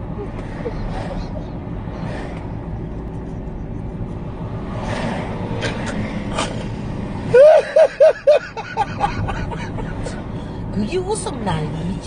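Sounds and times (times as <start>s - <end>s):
car road noise: 0.0s - 12.0s
person laughing loudly: 7.3s - 10.2s.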